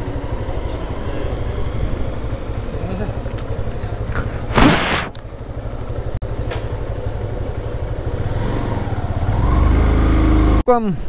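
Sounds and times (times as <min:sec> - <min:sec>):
motorcycle engine: 0:00.0 - 0:10.6
burst of rushing noise: 0:04.5 - 0:05.2.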